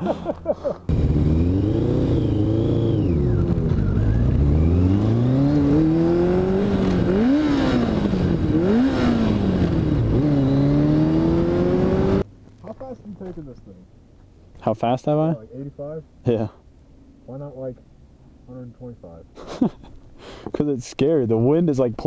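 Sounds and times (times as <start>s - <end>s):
motorcycle engine accelerating: 0.9s - 12.3s.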